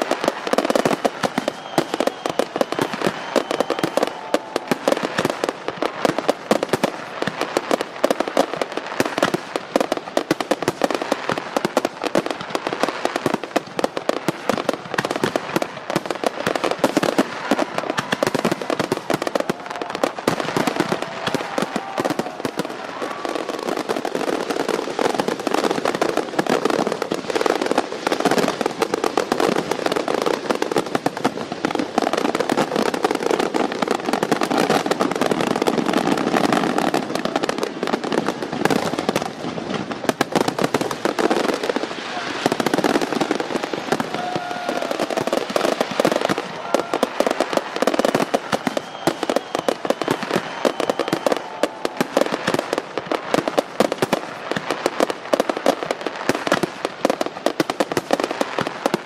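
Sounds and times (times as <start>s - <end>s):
fireworks crackling: 0.0s - 59.0s.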